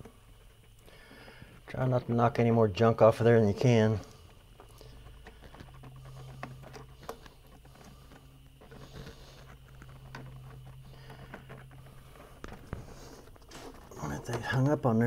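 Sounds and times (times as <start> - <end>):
steady low hum: 0.0 - 15.0
fingers prying rubber gaskets: 4.1 - 15.0.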